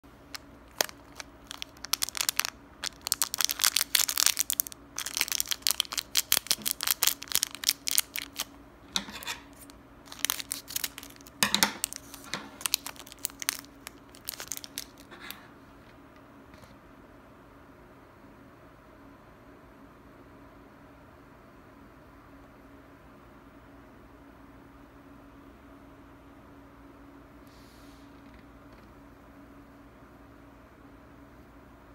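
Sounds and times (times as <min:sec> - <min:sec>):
plastic wrapper crinkling: 0:00.2 - 0:15.2.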